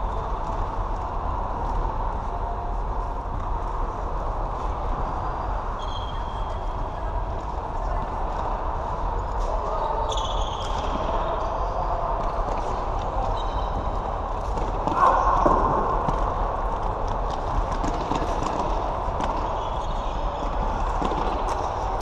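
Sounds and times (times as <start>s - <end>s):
low mains hum: 0.0s - 22.0s
running footsteps on hall floor: 10.7s - 22.0s.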